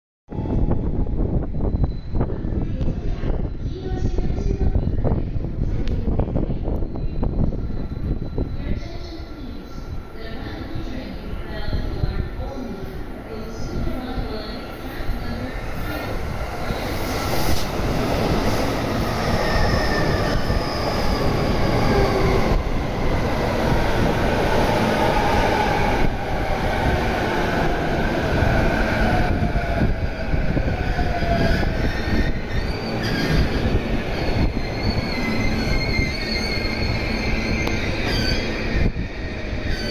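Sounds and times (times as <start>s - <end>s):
electric train running past: 0.4s - 39.9s
high wheel squeals: 31.2s - 39.9s.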